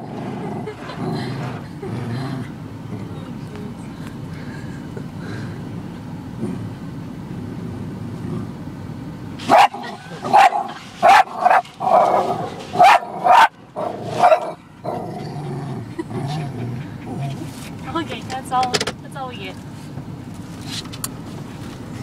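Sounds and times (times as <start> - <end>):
car wash rumbling: 0.0 - 22.0
dog barking: 9.5 - 13.5, 14.1 - 14.6.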